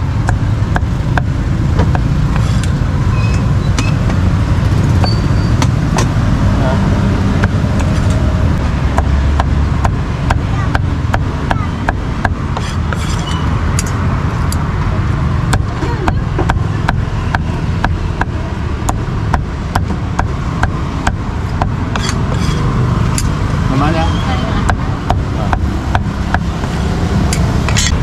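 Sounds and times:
low road traffic rumble: 0.0 - 28.0
cleaver chopping on wooden block: 0.2 - 2.7, 8.9 - 13.2, 15.5 - 22.6, 24.6 - 26.8.

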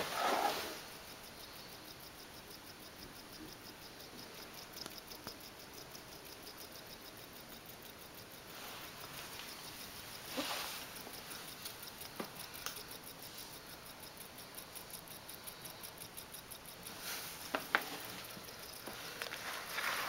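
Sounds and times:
small electric motor ticking: 10.9 - 20.0.

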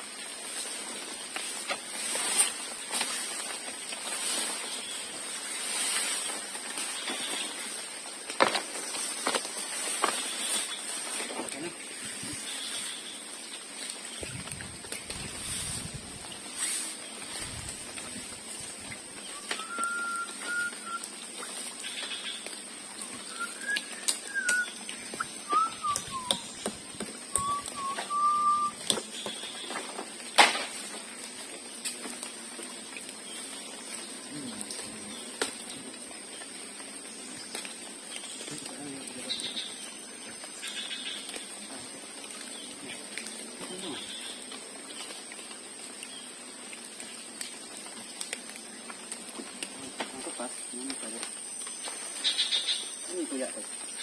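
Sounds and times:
plastic tarp rustling: 0.0 - 13.0, 13.7 - 22.0, 23.3 - 32.3
insect drone: 0.0 - 54.0
tarp snapping: 5.6 - 11.7, 27.3 - 32.3
person whistling gliding notes: 19.4 - 21.0, 23.3 - 24.7, 25.5 - 26.5, 27.3 - 28.8.

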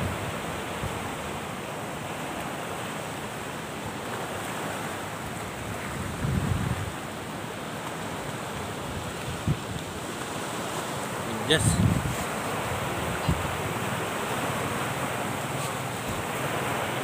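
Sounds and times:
wind buffeting microphone: 0.0 - 1.5, 4.4 - 7.2, 8.1 - 17.0
gentle surf on shore: 0.0 - 17.0
wind rushing: 11.5 - 14.2.

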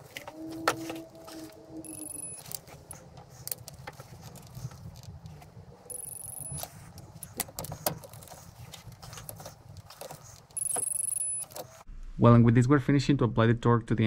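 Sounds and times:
short electronic beep: 1.8 - 2.4, 5.9 - 6.6, 10.6 - 11.5.

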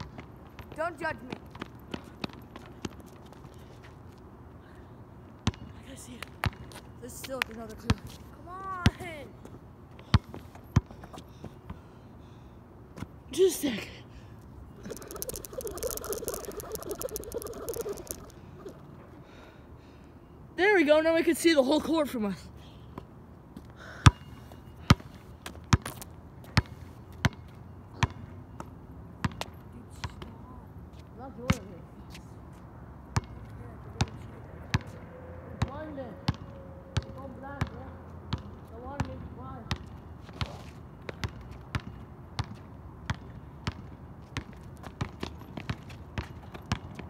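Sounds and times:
basketball bouncing on asphalt: 0.0 - 3.5, 5.4 - 8.2, 10.0 - 11.8, 14.8 - 18.8, 24.0 - 30.4, 33.1 - 47.0
basketball bouncing on hard court: 14.9 - 18.3, 41.1 - 47.0.

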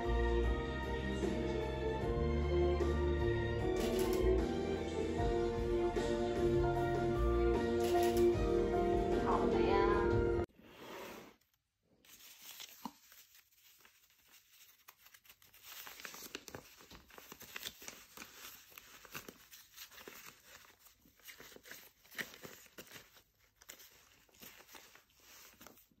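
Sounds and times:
paper rustling and crinkling: 12.0 - 26.0.

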